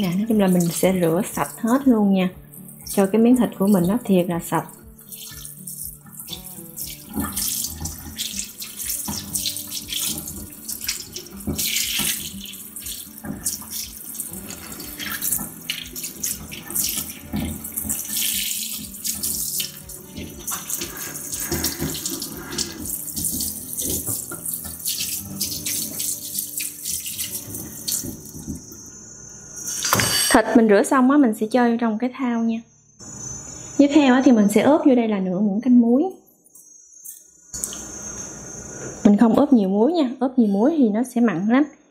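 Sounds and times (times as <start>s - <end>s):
tap water splashing in a sink: 2.6s - 28.7s.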